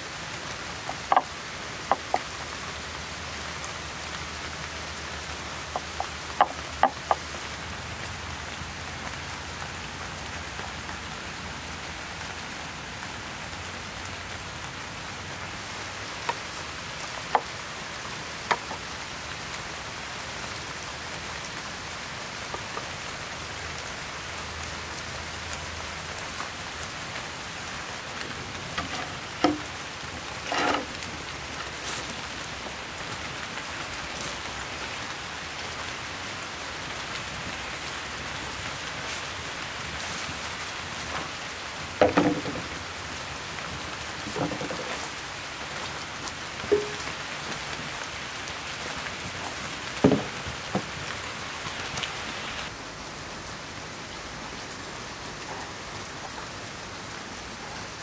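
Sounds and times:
steady rain falling: 0.0s - 58.0s
short knocks and thuds: 50.0s - 50.9s.

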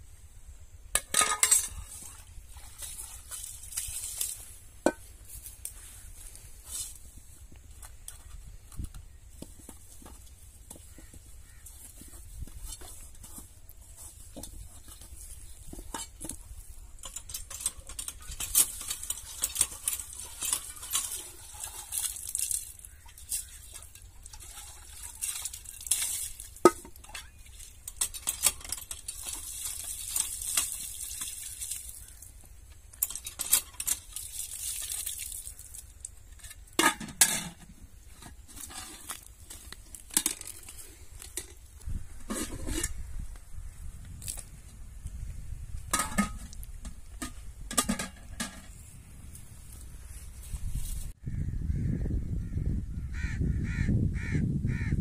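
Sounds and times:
utensils clinking against pots: 1.0s - 3.2s, 17.0s - 22.6s, 23.3s - 31.7s.

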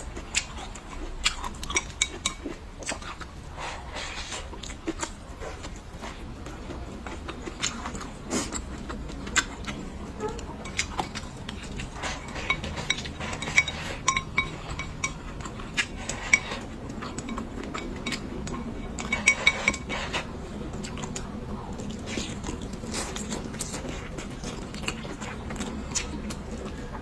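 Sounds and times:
chopsticks tapping ceramic bowl: 12.3s - 15.4s.

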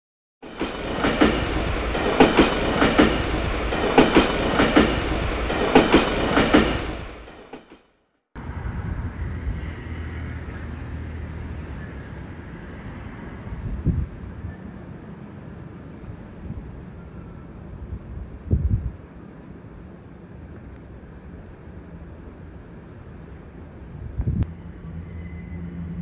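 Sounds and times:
train wheels clattering: 0.4s - 7.8s.

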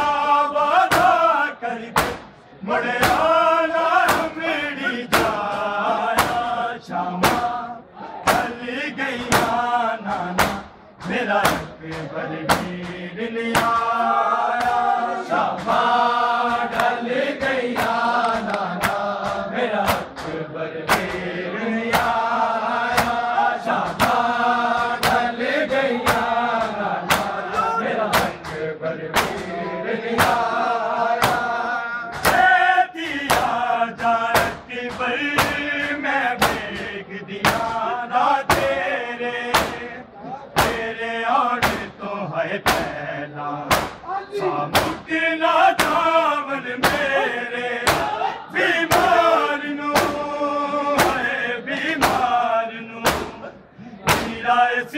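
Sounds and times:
men chanting in unison: 0.0s - 54.9s
hands slapping chests: 2.0s - 2.4s, 5.1s - 6.6s, 10.4s - 10.7s, 11.4s - 14.9s, 15.6s - 21.3s, 22.9s - 23.3s, 23.9s - 25.3s, 26.0s - 29.6s, 30.2s - 30.6s, 31.2s - 32.5s, 33.3s - 33.6s, 34.3s - 37.8s, 39.5s - 39.8s, 42.6s - 43.0s, 43.7s - 44.0s, 45.8s - 46.1s, 46.8s - 47.2s, 47.8s - 48.2s, 48.9s - 49.2s, 49.9s - 50.2s, 51.0s - 51.2s, 52.0s - 52.3s, 53.0s - 53.4s, 54.1s - 54.4s.

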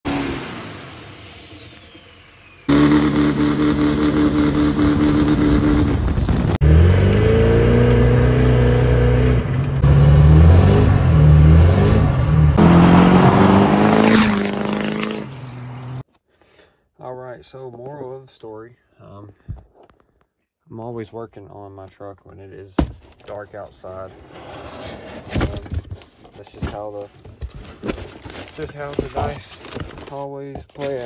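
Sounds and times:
diesel pickup engine revving: 0.1s - 16.0s.

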